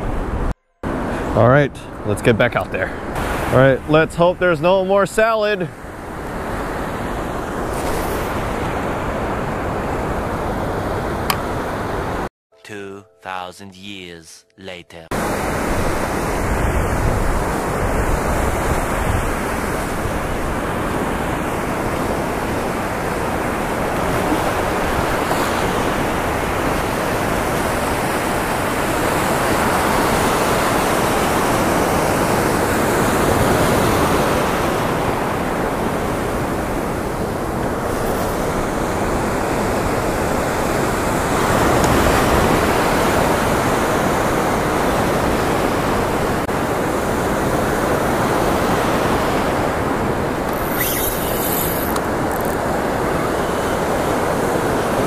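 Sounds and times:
ocean surf breaking: 2.0 - 12.3, 15.1 - 55.0
wind buffeting microphone: 15.3 - 55.0.

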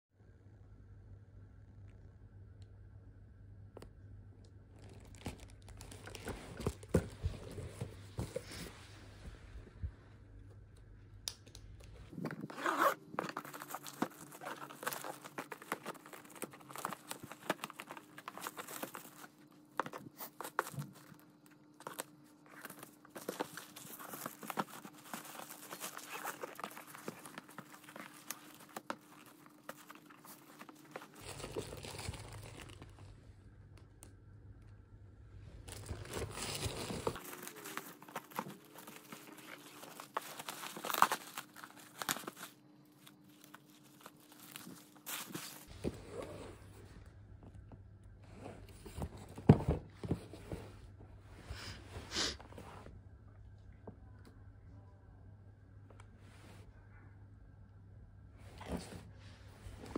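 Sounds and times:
plastic crinkling and rustling: 4.7 - 8.8, 12.1 - 33.2, 35.6 - 45.8
plastic ripping: 12.1 - 21.2, 21.8 - 33.0, 35.7 - 45.7.

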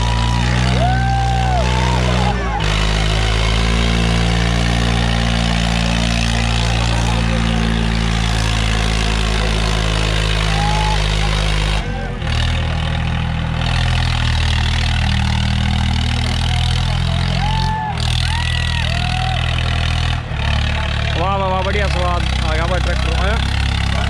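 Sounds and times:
tractor diesel engine running: 0.0 - 24.0.

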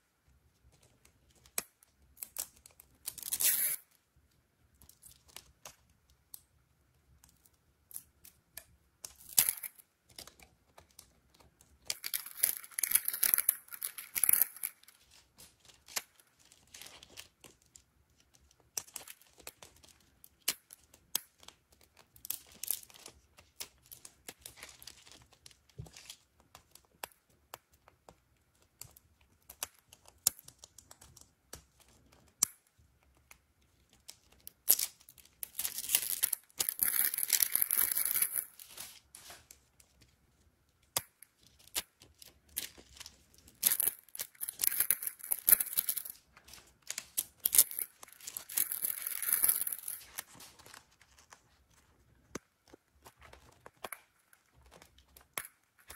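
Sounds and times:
plastic shrink-wrap crinkling and tearing: 41.4 - 51.8.

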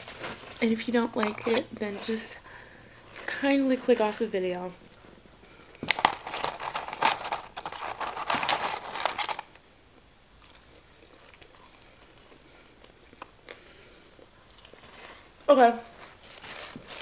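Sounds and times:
paper packaging crinkling: 0.0 - 2.3, 5.8 - 9.6, 15.9 - 17.0.

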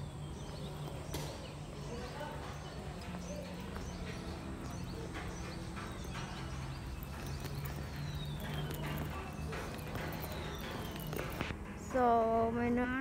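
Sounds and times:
footsteps on brick paving: 0.0 - 12.0.

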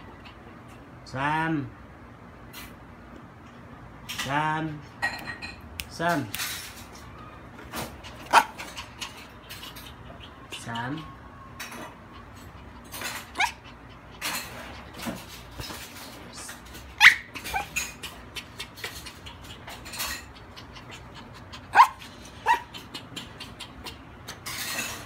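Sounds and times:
puppy yipping: 7.8 - 13.9, 16.9 - 18.1, 20.4 - 23.7.

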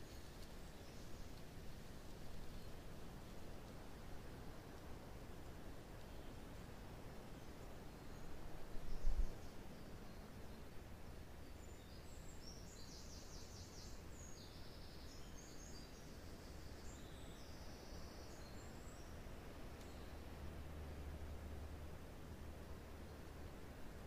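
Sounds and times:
songbirds chirping and trilling: 7.2 - 21.3.

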